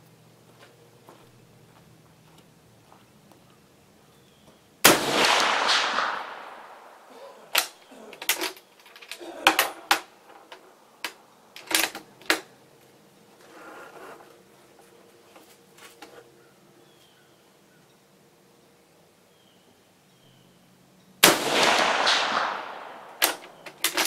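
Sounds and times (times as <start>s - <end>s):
rifle shot: 4.8s - 7.8s, 21.2s - 24.0s.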